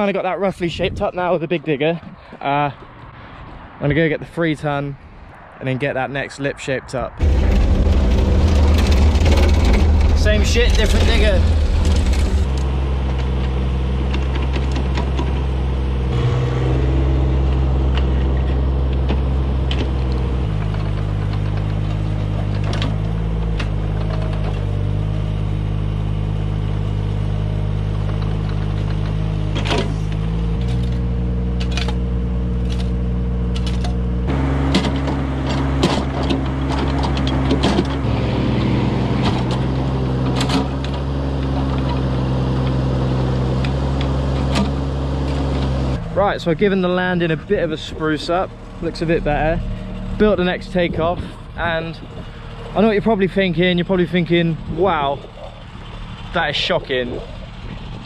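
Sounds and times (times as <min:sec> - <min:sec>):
excavator diesel engine running: 0:07.2 - 0:58.0
excavator bucket clanking: 0:34.7 - 0:38.0.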